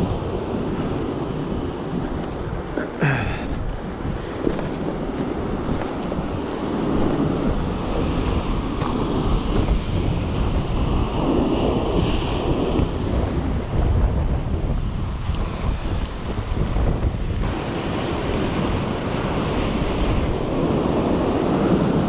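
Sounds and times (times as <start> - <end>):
wind buffeting microphone: 0.0 - 22.0
surf breaking over rocks: 17.4 - 22.0.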